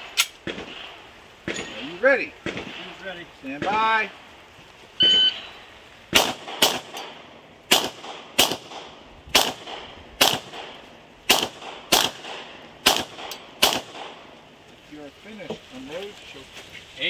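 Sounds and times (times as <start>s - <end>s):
pistol shots with echo: 2.4s - 3.0s, 6.1s - 14.3s
shot timer beep: 5.0s - 5.4s.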